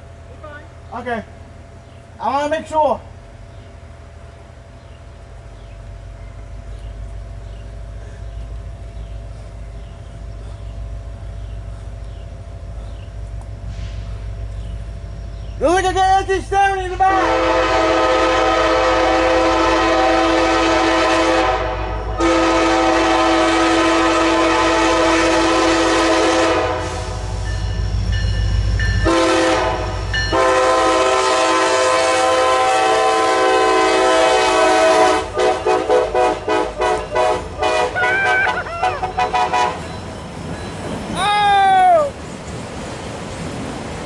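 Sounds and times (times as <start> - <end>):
locomotive engine rumbling: 0.0 - 44.0
locomotive air horn: 17.0 - 27.3, 29.0 - 39.9.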